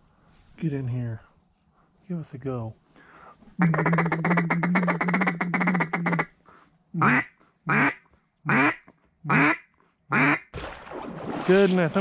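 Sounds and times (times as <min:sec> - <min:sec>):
duck call chattering and quacking: 0:03.6 - 0:06.3, 0:07.0 - 0:10.4.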